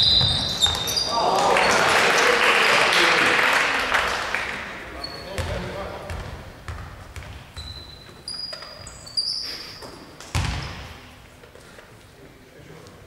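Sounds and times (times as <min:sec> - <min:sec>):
basketball bouncing with echo: 0:00.0 - 0:01.1, 0:05.2 - 0:09.0, 0:10.2 - 0:11.2
short high squeaks: 0:00.0 - 0:01.2, 0:07.6 - 0:10.1.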